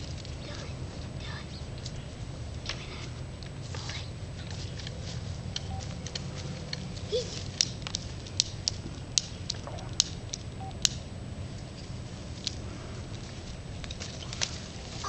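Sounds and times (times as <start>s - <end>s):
steady low rumble: 0.0s - 15.0s
sharp clicks: 4.8s - 12.6s.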